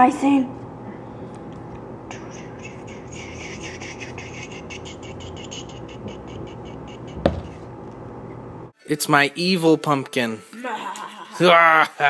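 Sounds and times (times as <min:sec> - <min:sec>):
heavy thump: 0:07.2 - 0:07.7.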